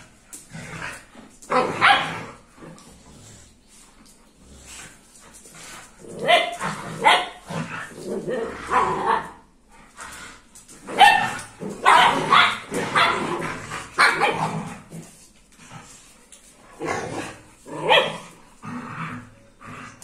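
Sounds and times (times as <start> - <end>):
dogs barking and yipping: 1.5 - 2.2, 10.8 - 13.4, 17.8 - 18.3.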